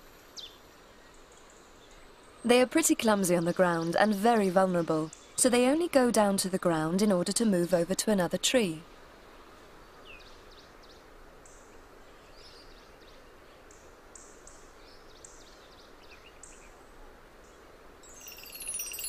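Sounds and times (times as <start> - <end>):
high bird chirps: 18.0 - 19.0
chiming descending music tones: 18.2 - 19.0.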